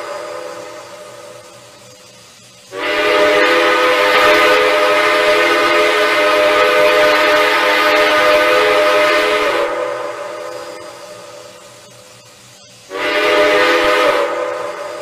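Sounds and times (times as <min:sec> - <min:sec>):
steam hissing: 0:00.0 - 0:15.0
steam locomotive whistle: 0:02.7 - 0:11.0, 0:12.9 - 0:15.0.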